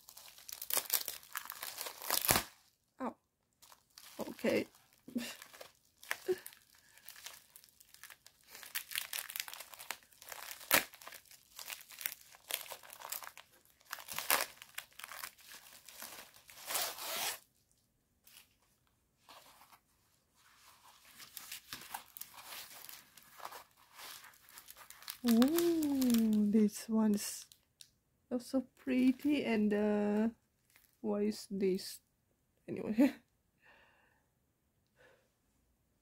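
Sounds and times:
plastic packaging crinkling: 0:00.0 - 0:02.8, 0:03.6 - 0:17.4, 0:20.6 - 0:27.8, 0:30.6 - 0:31.0.

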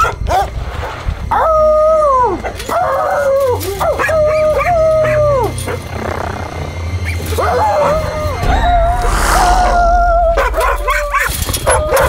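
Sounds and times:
dog howling: 0:01.3 - 0:06.1, 0:07.0 - 0:08.4
dog yipping and barking: 0:02.6 - 0:05.8.

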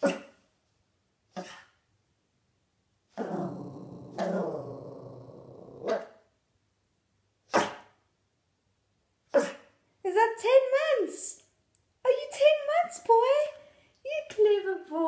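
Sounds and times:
puppy barking: 0:07.5 - 0:07.9, 0:09.4 - 0:09.7.

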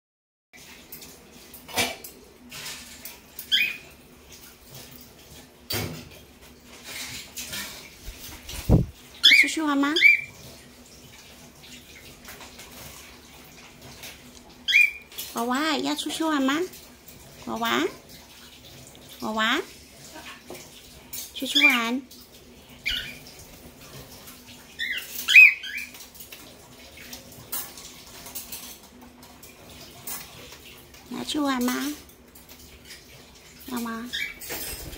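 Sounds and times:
claws and beaks clinking on cage: 0:02.5 - 0:05.1, 0:20.0 - 0:34.9.

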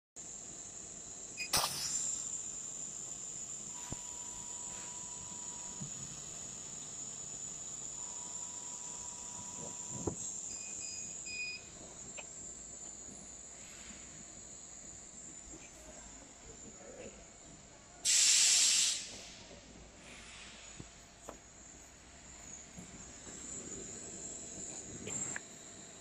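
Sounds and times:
laser cutter high-pitched whine: 0:00.2 - 0:12.4, 0:22.9 - 0:26.0
hiss: 0:00.2 - 0:15.9, 0:18.0 - 0:21.2.

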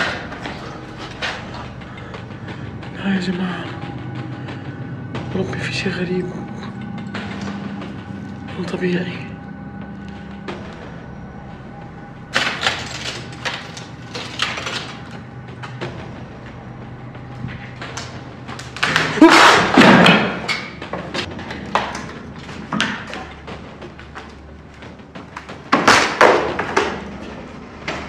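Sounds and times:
loose objects thumping and clattering: 0:12.4 - 0:16.2.

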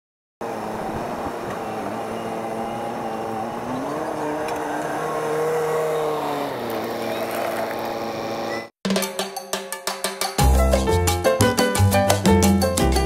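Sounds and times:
tractor diesel engine running: 0:00.4 - 0:08.7.

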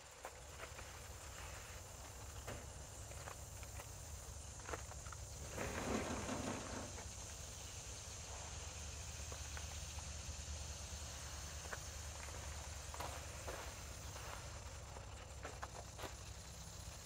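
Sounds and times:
high insect drone: 0:00.0 - 0:17.0
short scraping rustle: 0:05.4 - 0:07.1.

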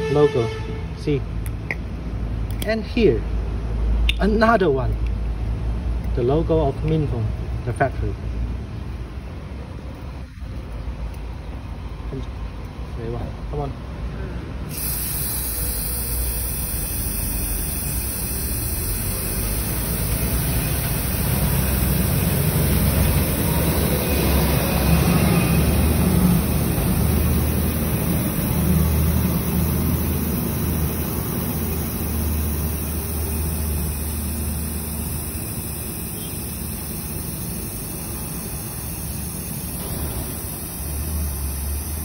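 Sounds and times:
aerosol can spraying hiss: 0:14.7 - 0:42.0.

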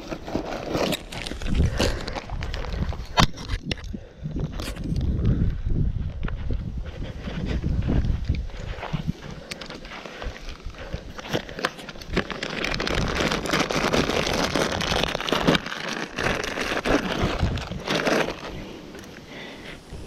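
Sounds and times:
plastic bag crinkling: 0:10.5 - 0:18.7.

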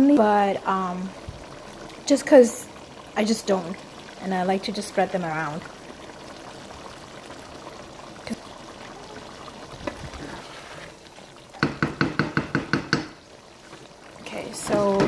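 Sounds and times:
gravy simmering and bubbling: 0:00.0 - 0:15.0
spatula knocking against pot: 0:11.6 - 0:13.2.

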